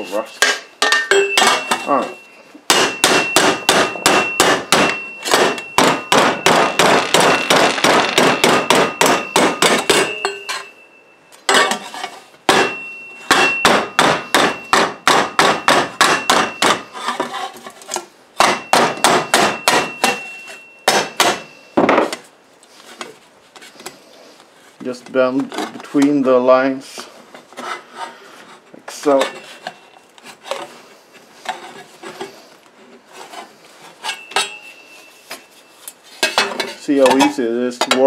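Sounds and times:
hammer blows on sheet metal: 0:02.7 - 0:10.3.

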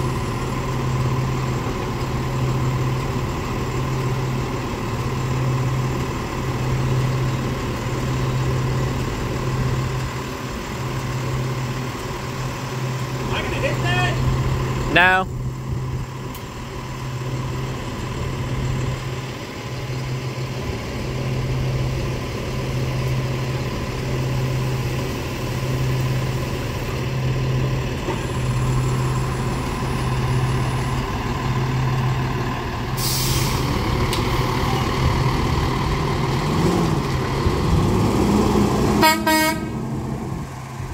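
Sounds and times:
truck diesel engine humming: 0:00.0 - 0:40.9
air brakes hissing: 0:32.9 - 0:34.5.

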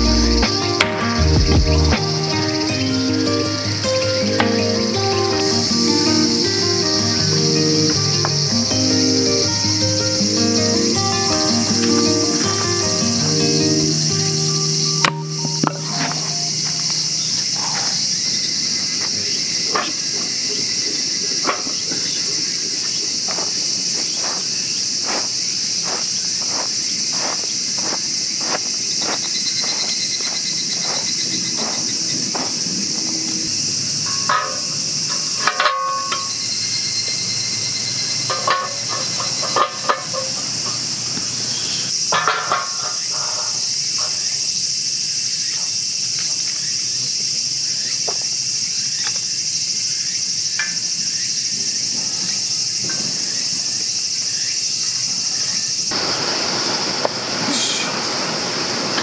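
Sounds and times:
insects chorus: 0:00.0 - 0:59.0
metal fire pit clanking: 0:15.0 - 0:20.4, 0:34.0 - 0:36.5, 0:38.1 - 0:41.2, 0:42.0 - 0:44.3.

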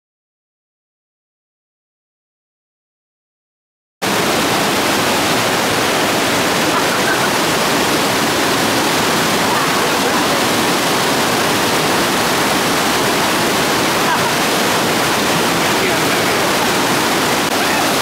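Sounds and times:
stream rushing over boulders: 0:04.0 - 0:18.0.

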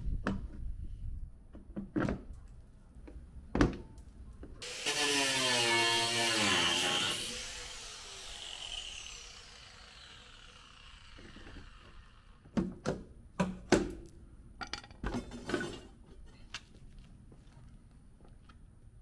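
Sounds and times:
power tool spinning down: 0:04.6 - 0:12.4.

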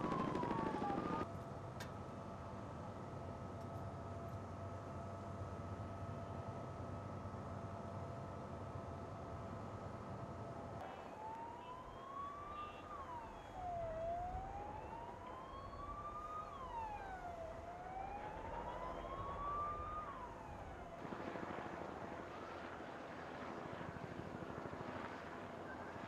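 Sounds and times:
emergency vehicle siren wailing: 0:00.0 - 0:01.3, 0:10.8 - 0:21.0.

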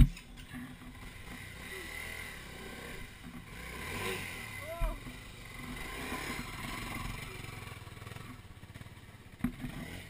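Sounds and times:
dirt bike passing: 0:00.0 - 0:10.0.

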